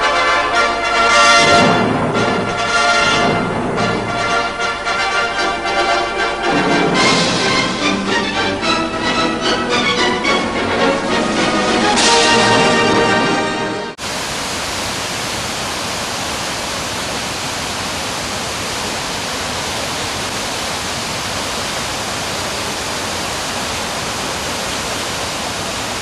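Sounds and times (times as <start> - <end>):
music: 0.0 - 14.0
stream rushing over boulders: 14.0 - 26.0.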